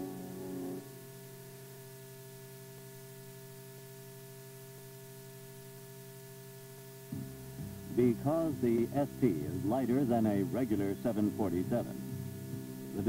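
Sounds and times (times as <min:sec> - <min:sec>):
low electrical hum with hiss: 0:00.0 - 0:13.0
background music: 0:07.2 - 0:13.0.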